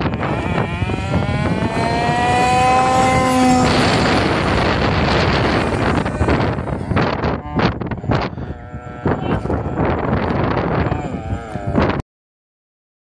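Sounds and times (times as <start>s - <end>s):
harsh rushing noise: 0.0s - 12.0s
rc car engine whining: 0.0s - 12.0s.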